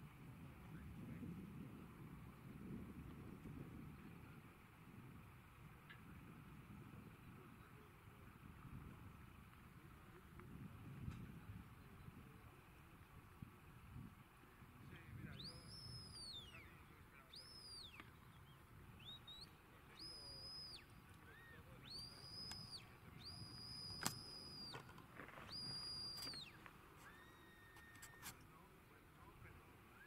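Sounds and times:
high whistle commands: 15.3s - 28.3s
sharp click: 23.7s - 25.0s.

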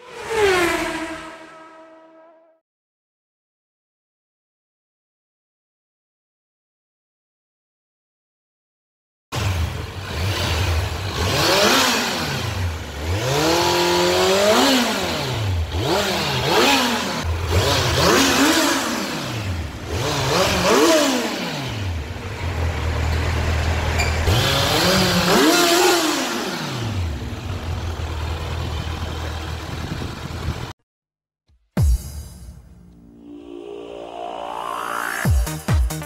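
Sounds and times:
motorcycle engine revving and idling: 9.4s - 30.8s.

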